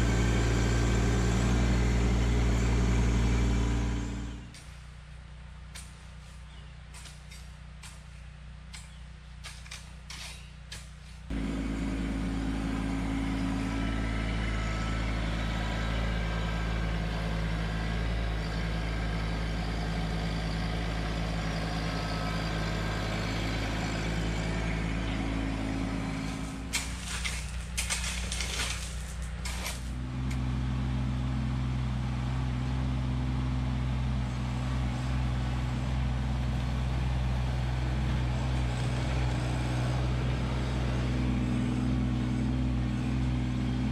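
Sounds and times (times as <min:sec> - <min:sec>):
tractor diesel engine running: 0:00.0 - 0:43.9
clatter: 0:26.3 - 0:30.0.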